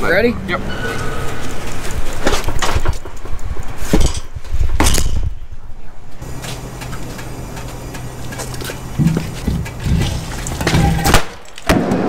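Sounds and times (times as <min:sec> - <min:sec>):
steady low hum: 0:05.8 - 0:11.1.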